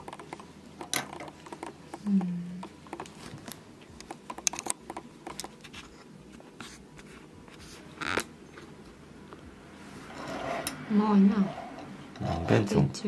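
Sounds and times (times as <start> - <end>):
short scrape: 9.9 - 10.8.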